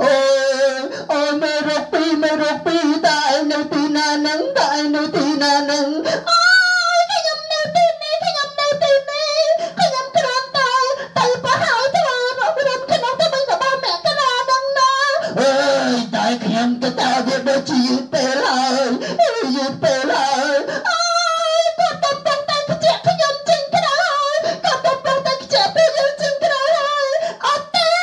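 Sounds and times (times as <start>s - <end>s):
voices singing: 9.8s - 28.0s.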